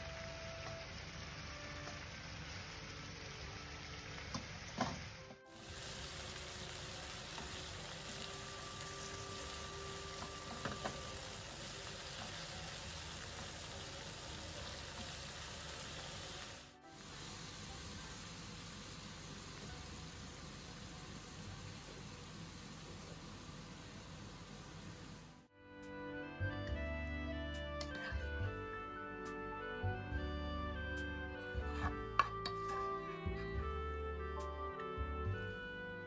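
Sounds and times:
food sizzling in a frying pan: 0:00.0 - 0:25.2.

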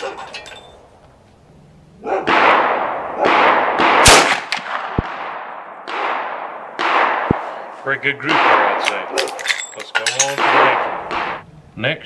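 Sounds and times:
rifle gunshots echoing: 0:02.0 - 0:11.4.

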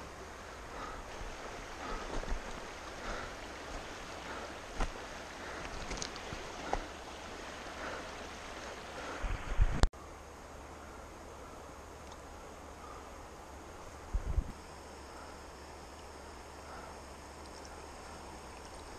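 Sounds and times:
river rushing: 0:00.0 - 0:09.8
wind buffeting microphone: 0:00.0 - 0:09.9, 0:14.0 - 0:14.6.

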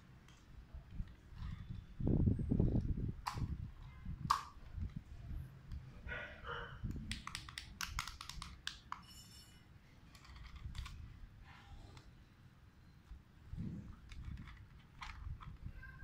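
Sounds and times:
handling rustle: 0:13.6 - 0:16.0.

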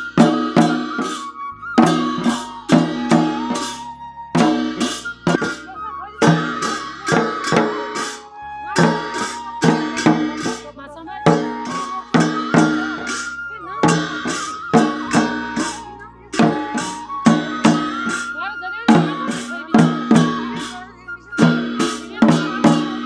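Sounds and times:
barrel drums beaten: 0:00.0 - 0:03.8, 0:04.4 - 0:23.0.

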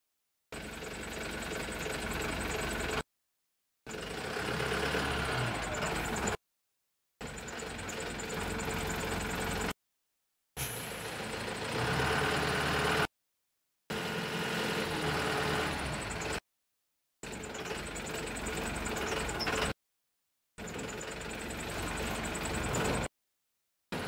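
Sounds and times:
truck engine drone: 0:00.6 - 0:03.0, 0:03.9 - 0:06.4, 0:07.2 - 0:09.8, 0:10.6 - 0:13.1, 0:13.9 - 0:16.4, 0:17.2 - 0:19.8, 0:20.6 - 0:23.1.

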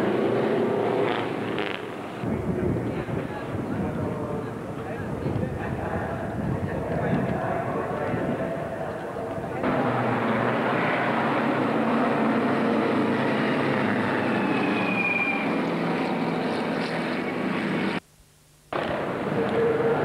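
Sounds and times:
engine whine: 0:00.0 - 0:02.9, 0:07.2 - 0:18.0
racing car engines passing: 0:09.6 - 0:18.0.

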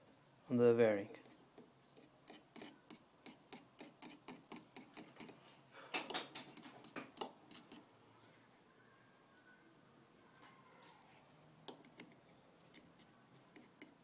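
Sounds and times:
screwdriver scraping metal: 0:02.0 - 0:05.4, 0:06.1 - 0:07.8.

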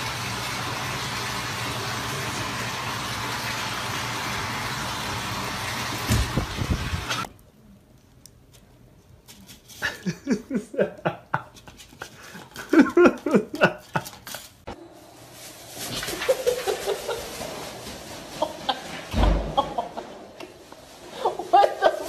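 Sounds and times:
person laughing: 0:09.8 - 0:14.3, 0:16.1 - 0:17.4, 0:18.4 - 0:20.2, 0:21.1 - 0:22.0
plastic bag rustling: 0:11.5 - 0:22.0.

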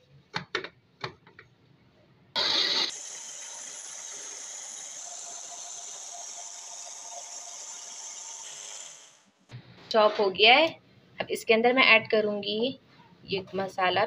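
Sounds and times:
electric hand blender whirring: 0:02.4 - 0:09.3.

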